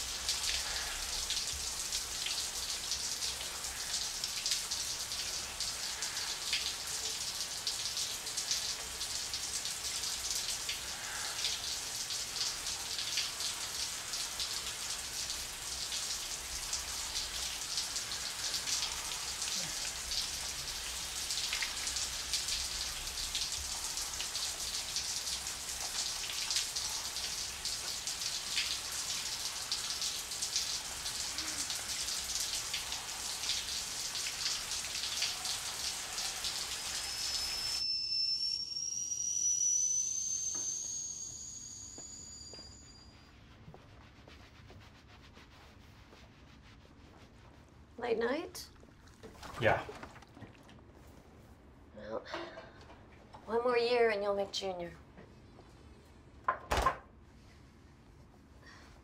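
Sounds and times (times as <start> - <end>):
shower water spraying: 0.0 - 37.8.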